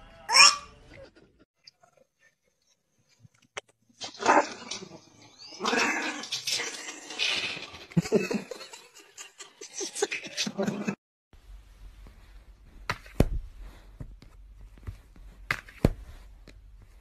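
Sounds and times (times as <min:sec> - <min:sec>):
small dog barking and growling: 0:04.2 - 0:04.7.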